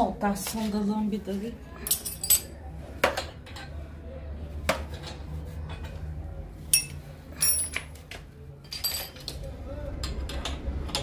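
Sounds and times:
hand tools clinking on metal: 6.7 - 8.0, 8.6 - 9.4.

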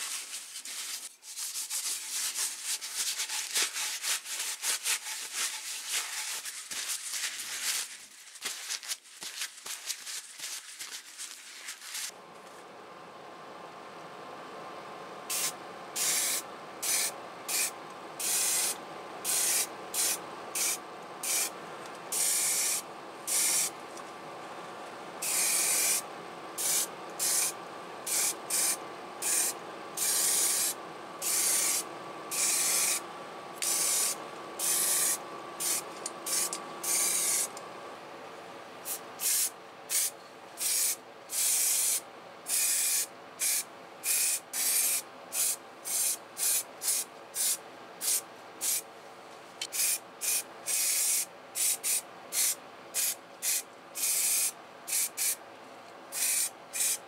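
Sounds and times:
steady hum: 12.1 - 41.3
spray paint hissing bursts: 15.3 - 21.5, 22.1 - 23.8, 25.2 - 26.0, 26.6 - 33.0, 33.6 - 37.5, 38.8 - 48.8, 49.6 - 55.4, 56.1 - 57.0.

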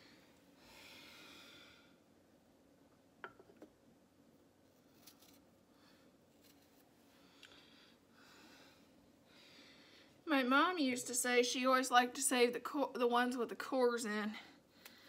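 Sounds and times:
soft rustle: 4.6 - 7.4.

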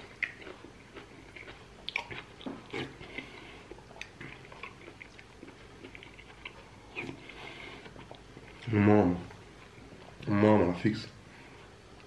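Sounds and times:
chewing and slurping soup: 0.0 - 8.7.

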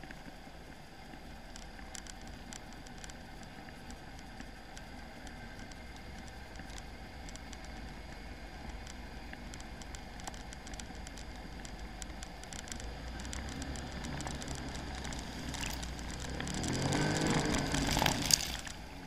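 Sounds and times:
vehicle engine rumble: 0.0 - 19.0.

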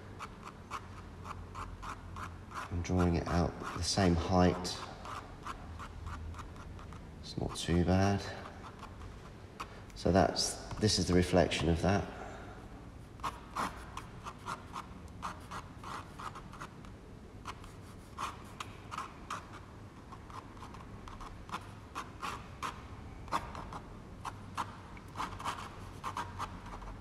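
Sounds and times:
pen scratching on paper: 0.2 - 7.8, 8.5 - 9.0, 13.1 - 16.8, 17.4 - 27.0.

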